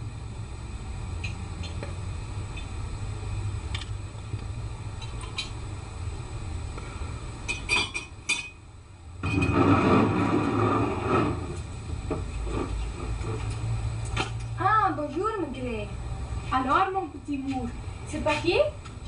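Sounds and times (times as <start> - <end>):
glassware clinking: 7.5 - 8.6.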